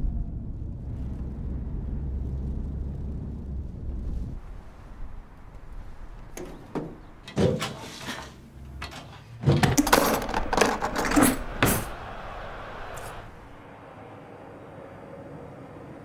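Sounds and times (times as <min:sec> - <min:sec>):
sharp knocks and clatters: 0:06.3 - 0:12.2.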